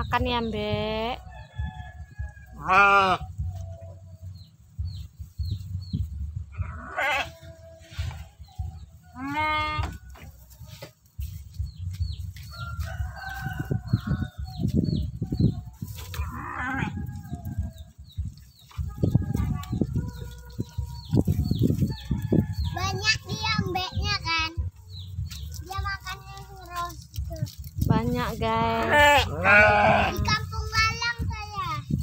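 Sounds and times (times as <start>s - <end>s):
small birds chirping: 0.0s - 7.6s, 8.2s - 32.0s
sheep bleating: 2.6s - 3.2s, 6.6s - 7.5s, 9.2s - 9.9s, 28.8s - 30.3s.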